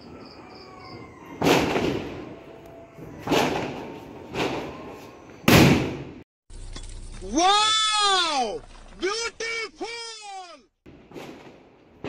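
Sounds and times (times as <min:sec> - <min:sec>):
firecrackers banging: 0:01.4 - 0:06.2, 0:10.9 - 0:12.0.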